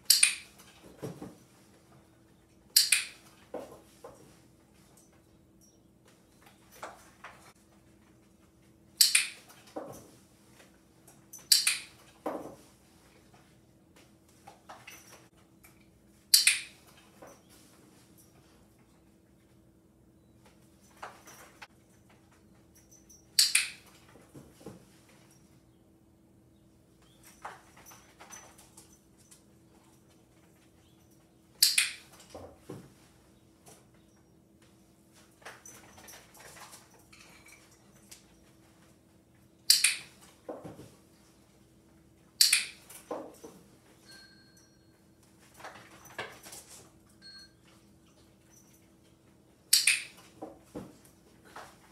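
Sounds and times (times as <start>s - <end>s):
dog-training clicker clicking: 2.8s - 3.2s, 23.4s - 23.8s, 42.4s - 42.8s, 49.7s - 50.1s
toy ball click-rattle: 49.8s - 50.1s.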